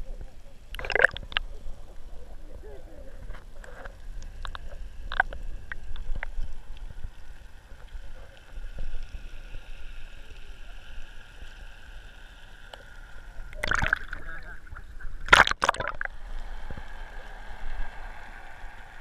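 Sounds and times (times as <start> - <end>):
muffled underwater rumble: 0.0 - 19.0
underwater clicks and knocks: 0.7 - 1.5, 3.6 - 6.4, 13.5 - 14.2, 15.3 - 16.1.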